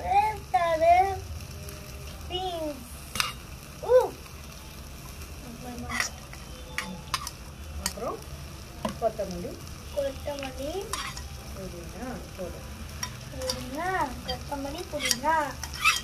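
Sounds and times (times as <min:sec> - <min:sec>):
frying sizzle: 0:00.0 - 0:16.0
metal spoon scraping steel pot: 0:05.9 - 0:08.0, 0:10.9 - 0:11.3, 0:13.0 - 0:16.0.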